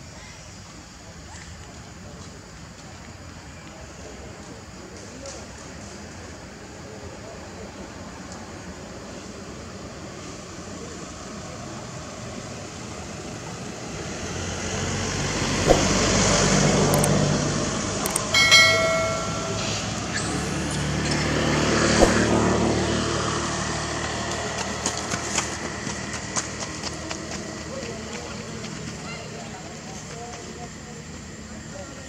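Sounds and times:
vehicles passing: 0:10.4 - 0:31.6
short high-pitched tone: 0:18.2 - 0:21.0.

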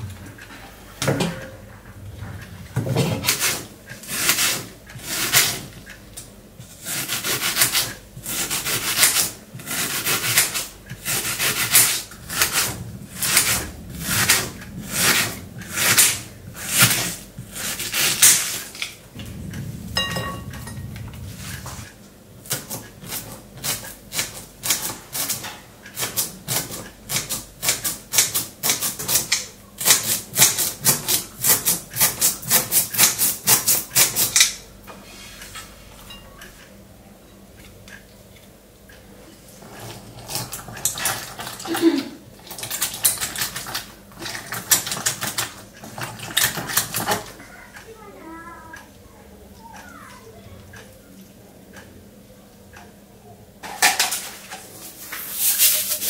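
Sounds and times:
knife chopping vegetables: 0:06.6 - 0:18.8, 0:22.4 - 0:34.6.

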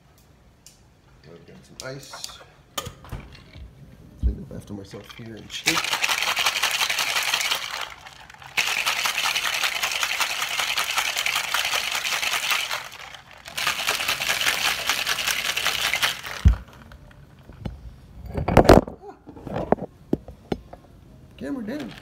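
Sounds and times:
ice rattling in cocktail shaker: 0:04.8 - 0:17.2, 0:21.7 - 0:22.0.

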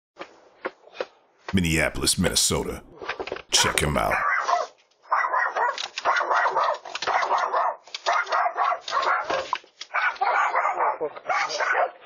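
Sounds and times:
dog barking: 0:04.2 - 0:12.0.

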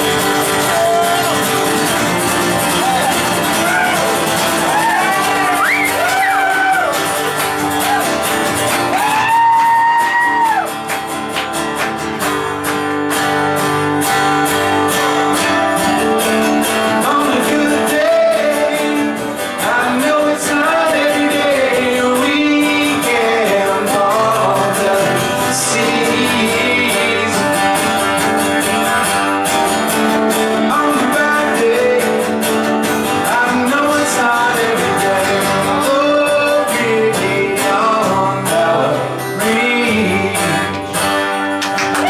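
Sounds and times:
acoustic guitars playing: 0:00.0 - 0:42.0
man singing: 0:16.4 - 0:41.2.

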